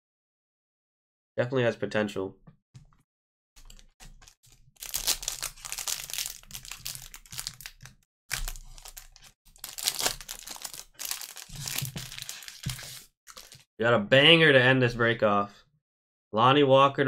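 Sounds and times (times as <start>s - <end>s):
plastic wrapping crinkling: 3.6s - 13.7s.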